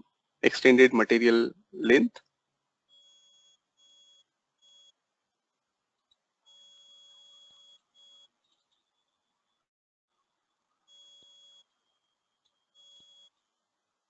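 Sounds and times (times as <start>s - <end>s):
faint electronic beeps: 2.9s - 5.0s, 6.4s - 9.3s, 10.8s - 13.6s.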